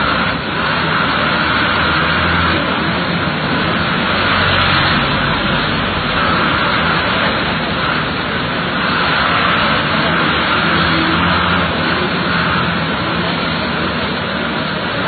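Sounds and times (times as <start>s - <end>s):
bus engine hum: 0.0s - 15.0s
road noise hiss: 0.0s - 15.0s.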